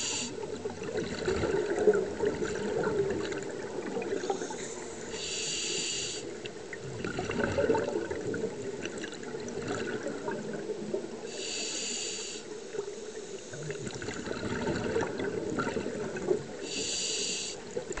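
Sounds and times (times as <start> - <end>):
regulator hissing inhalations: 0.0 - 0.4, 4.2 - 6.3, 11.3 - 13.7, 16.6 - 17.6
underwater bubbling: 0.0 - 18.0.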